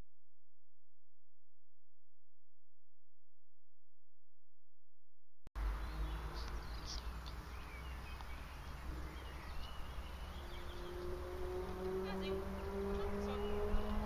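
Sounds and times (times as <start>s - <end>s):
birds chirping: 5.6s - 14.0s.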